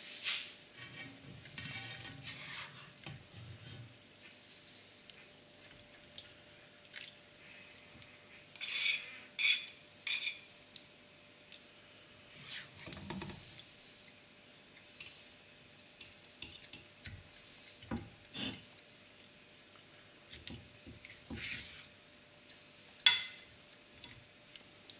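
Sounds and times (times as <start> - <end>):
cutlery clinking on china plate: 23.1 - 23.4.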